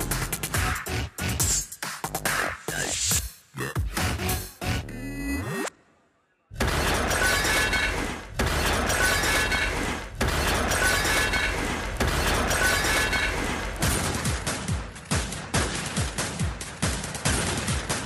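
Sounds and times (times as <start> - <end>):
glass shattering crash: 6.6 - 14.2.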